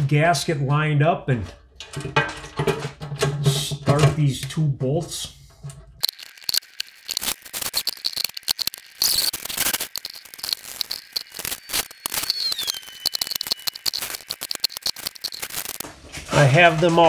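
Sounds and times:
high squeak gliding down: 0:07.8 - 0:15.8.

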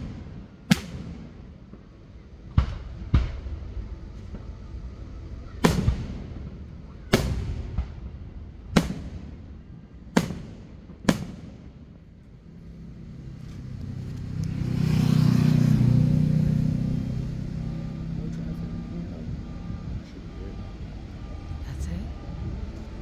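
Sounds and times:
firework bangs: 0:00.0 - 0:12.3
passing vehicle engine and tyres: 0:11.9 - 0:23.0.

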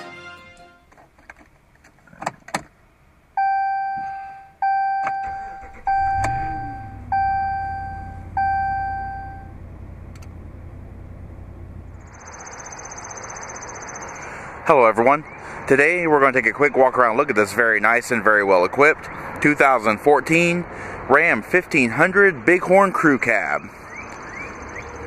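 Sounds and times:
outdoor noise with high buzzing: 0:00.8 - 0:25.0
warning chimes: 0:03.4 - 0:09.6
engine cranking and idling: 0:05.0 - 0:12.1.

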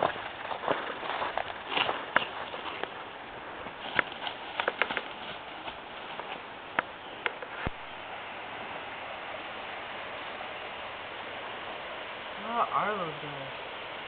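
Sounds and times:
footsteps crunching through twigs: 0:00.0 - 0:06.5
steady hiss: 0:00.0 - 0:14.0.

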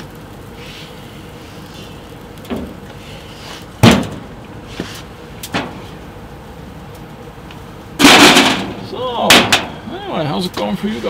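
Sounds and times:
knocks of handling grill: 0:08.0 - 0:09.7
metal grill lid clanging shut: 0:08.0 - 0:09.8.

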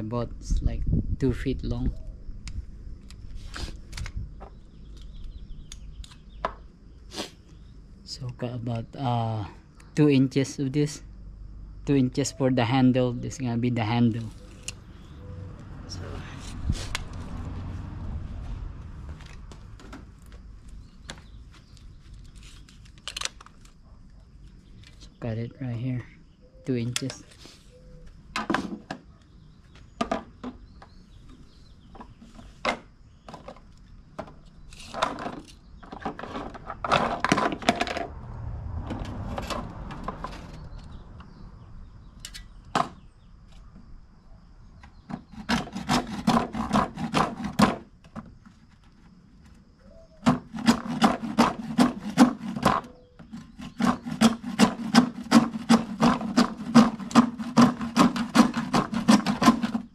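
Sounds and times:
hand saw cutting plastic pipe: 0:45.2 - 0:47.8, 0:50.2 - 0:59.9.

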